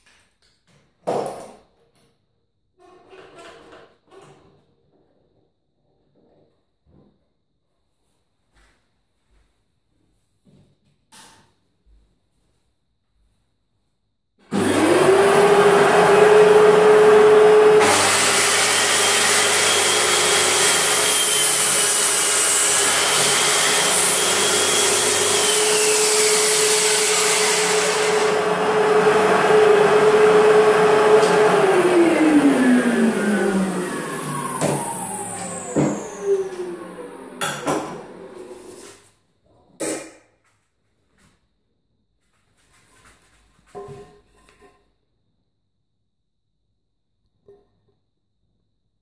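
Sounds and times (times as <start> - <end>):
saw cutting through board: 14.5 - 38.9
circular saw whining: 14.6 - 38.9.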